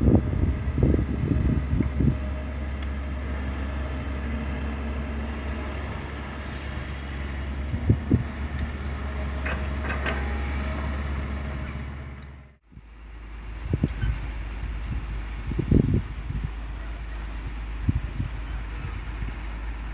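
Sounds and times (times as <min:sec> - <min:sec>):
excavator diesel engine running: 0:00.0 - 0:19.9
clanks: 0:08.6 - 0:10.6.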